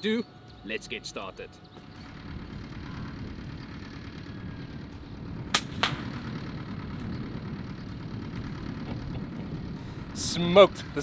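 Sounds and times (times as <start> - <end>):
steady low rumble: 0.0 - 11.0
air rifle shot crack: 5.5 - 6.4.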